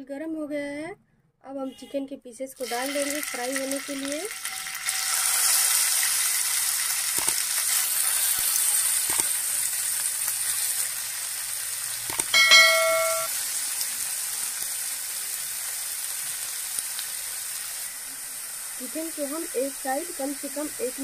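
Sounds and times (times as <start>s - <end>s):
chicken sizzling in oil: 2.6s - 21.0s
metallic clink: 12.3s - 13.3s.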